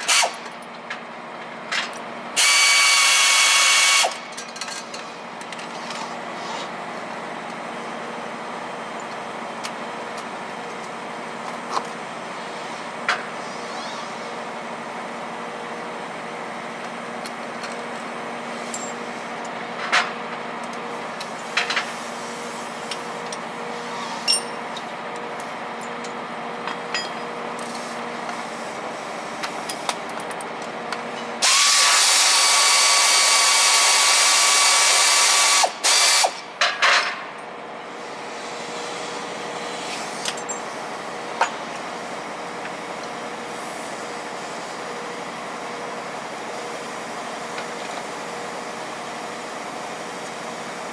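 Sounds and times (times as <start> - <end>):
power wrench running: 0.0 - 0.5, 2.4 - 4.2, 31.4 - 36.4
steady background hum: 4.0 - 31.4, 35.6 - 50.9
metal tools clinking: 18.7 - 19.0, 24.2 - 24.9, 25.8 - 27.3, 40.2 - 40.7.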